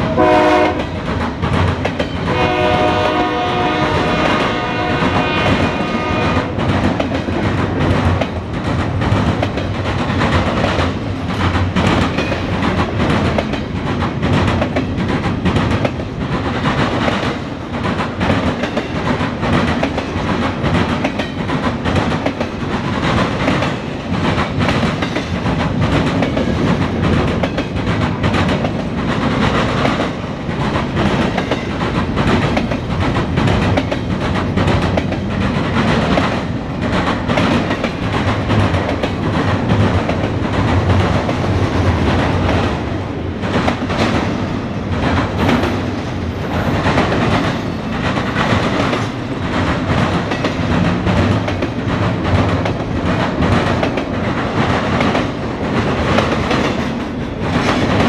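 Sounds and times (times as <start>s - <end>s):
steel wheels rolling on rail: 0.0s - 58.0s
wheels clicking over rail joints: 6.5s - 46.0s.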